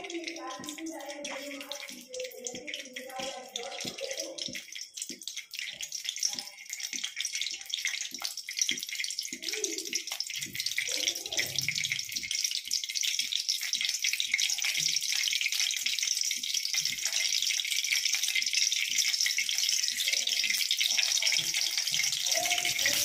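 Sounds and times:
oil sizzling and crackling: 0.0 - 23.0.

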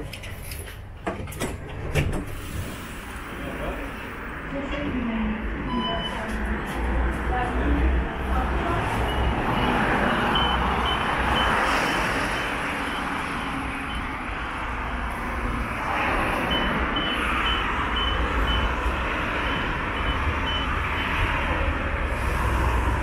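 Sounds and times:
street traffic: 0.0 - 23.0
tram pulling in: 0.8 - 23.0
car passing: 2.3 - 23.0.

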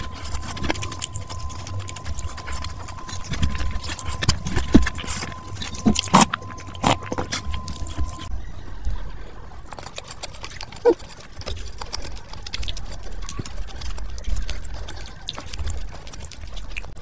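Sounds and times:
faint steady tone: 0.0 - 9.6
wet chewing clicks: 0.0 - 17.0.

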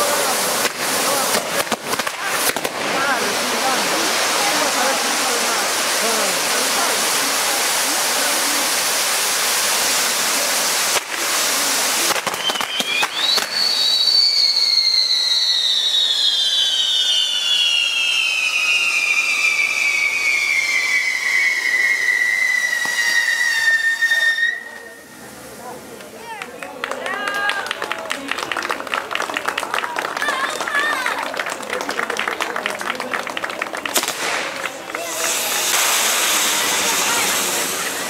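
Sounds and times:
whistling firework: 0.0 - 25.2, 33.5 - 38.0
fireworks hissing: 0.0 - 26.2, 33.3 - 38.0
fireworks crackling: 0.0 - 38.0.

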